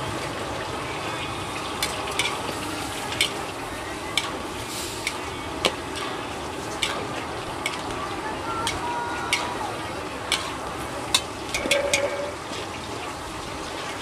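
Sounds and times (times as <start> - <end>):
steady sizzle: 0.0 - 14.0
metal spatula clanking on wok: 5.0 - 8.0, 8.6 - 9.6, 10.3 - 12.4.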